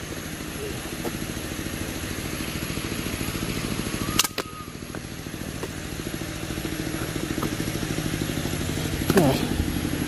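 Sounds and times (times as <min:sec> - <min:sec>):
small engine running: 0:00.0 - 0:10.0
sharp crack: 0:04.1 - 0:04.6.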